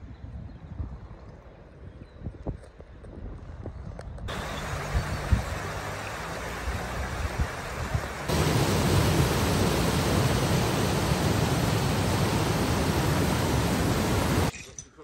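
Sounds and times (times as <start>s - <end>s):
stream rushing over stones: 4.3s - 14.5s.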